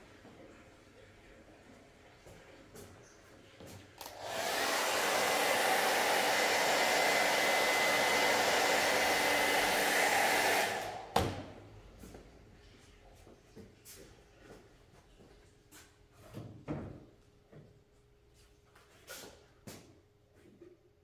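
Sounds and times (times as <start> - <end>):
heat gun blowing air: 4.0 - 11.4.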